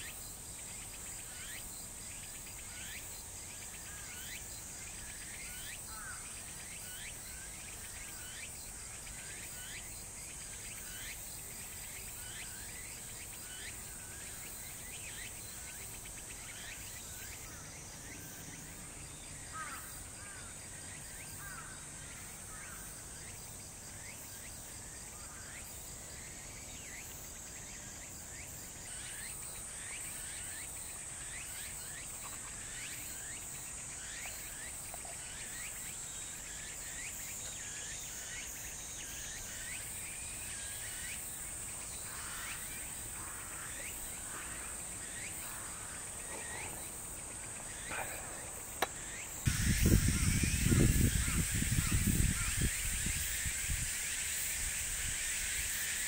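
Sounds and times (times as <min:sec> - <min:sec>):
high-pitched insect drone: 0:25.2 - 0:56.0
cricket-like pulsing: 0:25.6 - 0:56.0.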